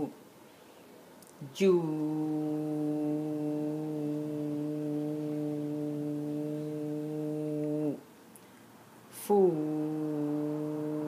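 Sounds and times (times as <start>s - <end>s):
person chanting long vowel: 1.4s - 8.1s, 9.1s - 11.0s.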